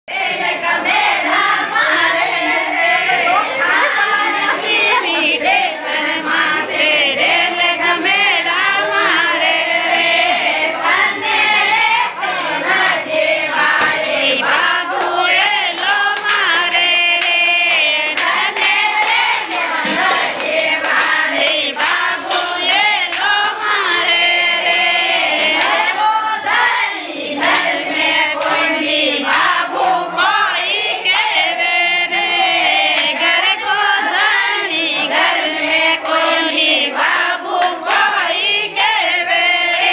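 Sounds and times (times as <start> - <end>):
women singing folk song: 0.1 - 39.9
hand clapping: 7.2 - 9.0, 12.7 - 39.9.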